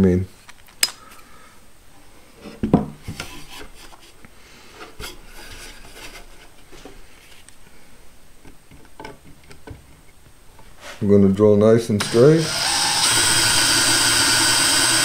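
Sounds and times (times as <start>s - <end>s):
wood scraping against wood: 2.4s - 7.5s, 10.6s - 11.2s.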